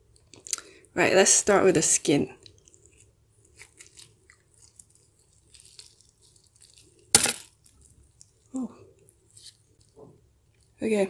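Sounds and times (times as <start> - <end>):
fried chicken skin crackling: 2.4 - 10.0
loud crunch: 7.1 - 7.6.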